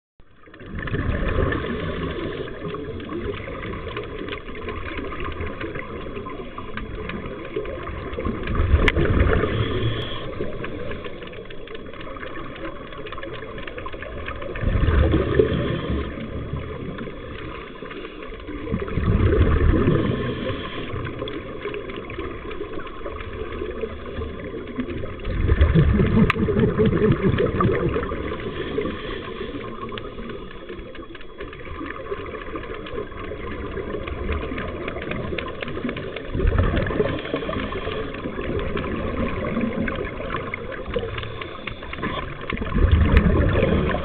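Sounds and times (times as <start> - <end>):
gurgling exhaled bubbles: 0.3 - 44.0
underwater regulator breathing: 8.4 - 11.6, 19.4 - 21.5, 25.6 - 30.9, 36.8 - 44.0.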